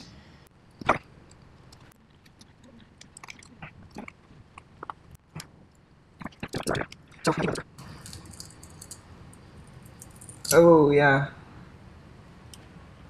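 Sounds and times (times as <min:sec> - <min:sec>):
small clicks taps and crunches: 0:00.8 - 0:09.0.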